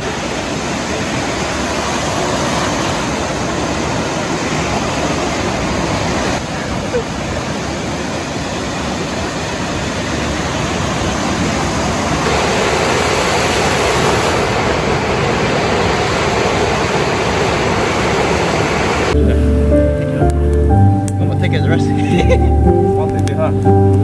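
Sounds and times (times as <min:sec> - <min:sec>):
waves breaking on a beach: 0:00.0 - 0:20.1
music: 0:19.2 - 0:24.0.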